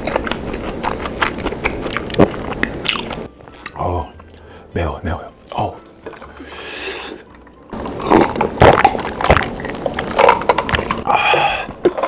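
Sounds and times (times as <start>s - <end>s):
breathy exhale: 6.3s - 7.3s, 11.1s - 11.8s
person sharp breath: 6.3s - 7.3s, 11.1s - 11.8s
person gulping a drink: 7.7s - 12.0s.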